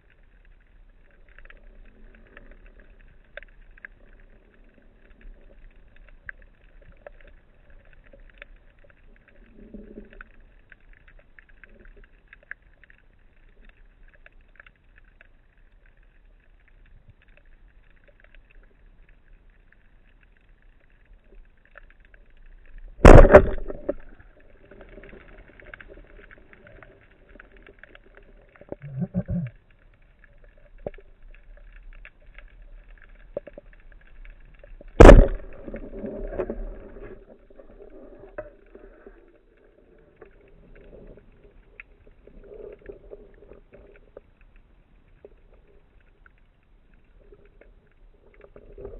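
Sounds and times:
faint underwater crackling: 0.0 - 48.9
deep thud: 23.0 - 24.0, 35.0 - 35.8
loud underwater thump: 23.0 - 24.1, 35.0 - 36.7.

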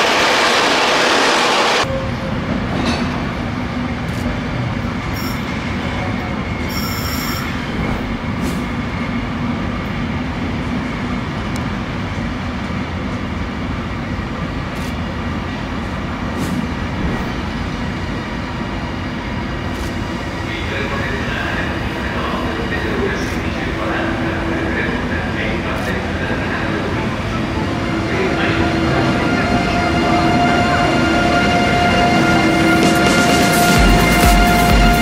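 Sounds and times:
loud rushing noise: 0.0 - 1.9, 7.4 - 10.3, 16.2 - 20.5, 23.7 - 35.0
train rumbling: 0.0 - 35.0
high metallic squeals: 5.1 - 5.7, 6.6 - 7.8.

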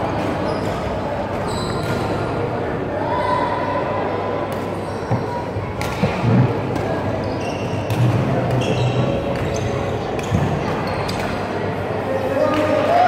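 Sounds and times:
sneakers squeaking: 0.2 - 2.4, 4.8 - 11.6.

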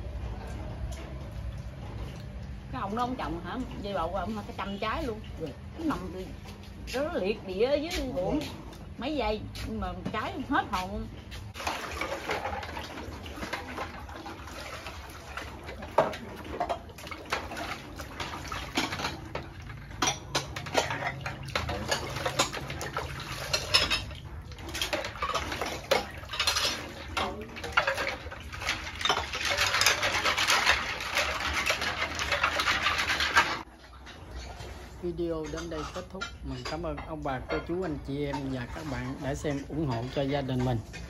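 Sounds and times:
dishes and utensils clinking: 15.6 - 41.0.

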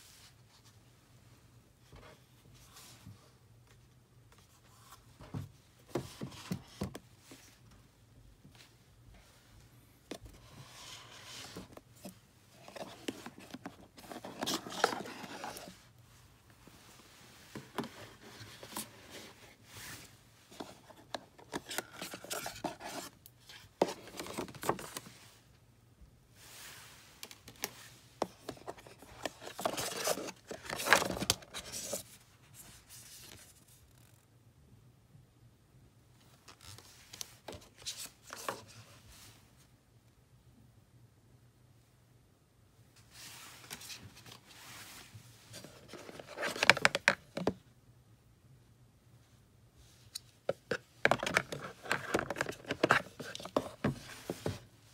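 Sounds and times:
cardboard box being handled: 11.0 - 15.8.

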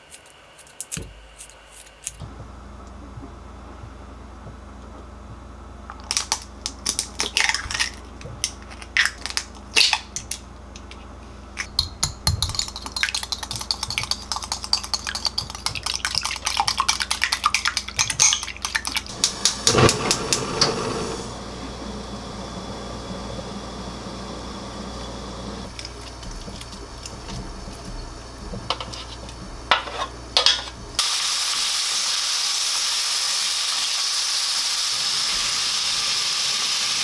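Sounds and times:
eggs cracking on glass bowl: 11.6 - 19.6
utensil beating in glass bowl: 11.6 - 21.2
steady hiss: 19.1 - 23.6.

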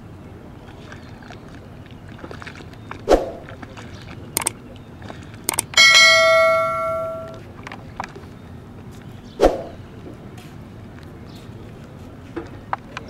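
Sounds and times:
mouse clicks: 5.5 - 5.8
bell ding: 5.5 - 7.4.

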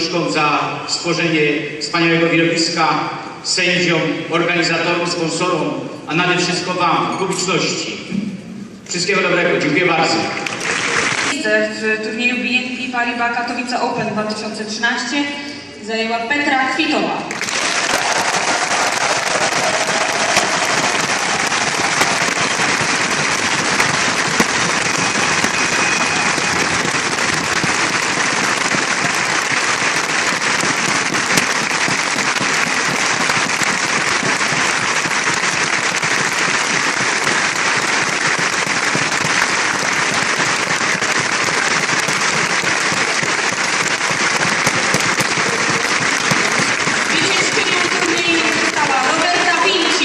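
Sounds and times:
crowd applauding: 10.1 - 11.4, 17.3 - 50.0.

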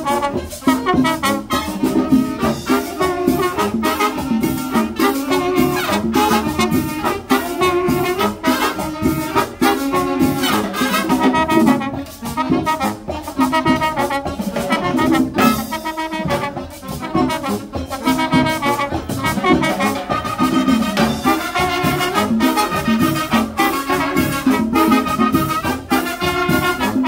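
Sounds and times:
brass band playing dance tune: 0.0 - 27.0
steady drum beat: 0.0 - 27.0.

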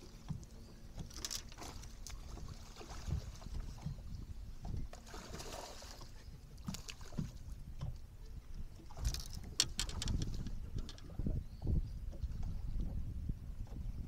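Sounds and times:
water lapping against hull: 0.0 - 14.0.

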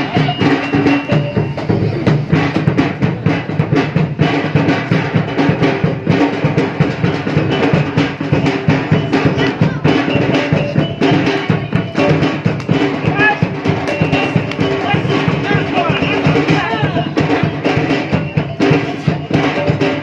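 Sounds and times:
fast dense drumming: 0.0 - 20.0.

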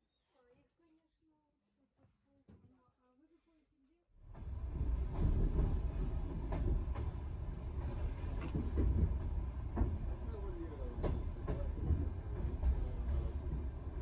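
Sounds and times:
train rumbling on rails: 4.2 - 14.0
wheels clacking over rail joints: 4.4 - 14.0.

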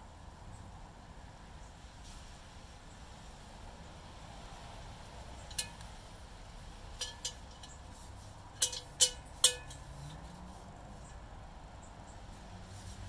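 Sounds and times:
cast iron pot clinking on steel: 5.4 - 5.9, 6.8 - 10.3.

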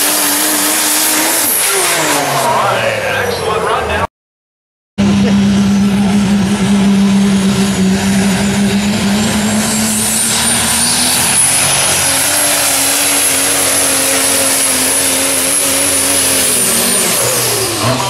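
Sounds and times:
diesel truck engine at full throttle: 0.0 - 4.1, 5.0 - 18.0
turbocharger whistle: 7.6 - 18.0.

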